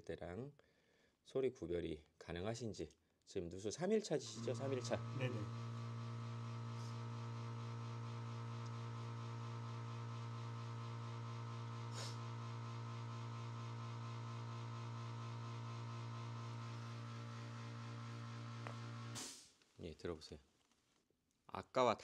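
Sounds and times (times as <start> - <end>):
electric air compressor humming: 4.2 - 19.4.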